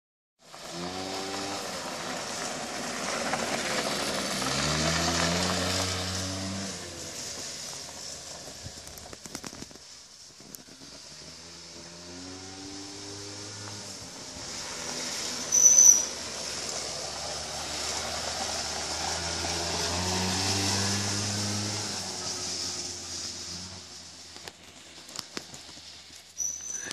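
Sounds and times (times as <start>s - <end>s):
small quad engine passing: 0.5s - 9.6s, 10.6s - 26.9s
brief shrill tone: 15.5s - 16.2s, 26.4s - 26.9s.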